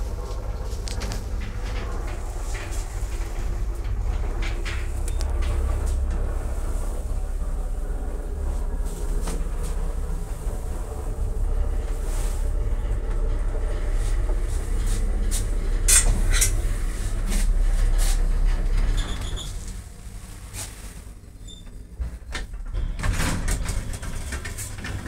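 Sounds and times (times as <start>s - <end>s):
lift cab rumbling: 0.0s - 25.0s.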